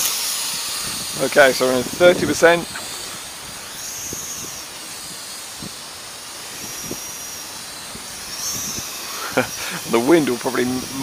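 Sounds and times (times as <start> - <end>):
quadcopter motors whining: 0.0 - 11.0
strong wind hissing: 0.0 - 11.0.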